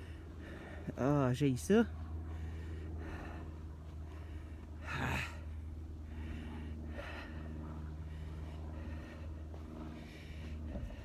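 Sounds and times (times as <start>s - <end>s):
person breathing hard: 0.0s - 1.0s, 2.0s - 11.0s
footsteps in loose sand: 7.6s - 11.0s.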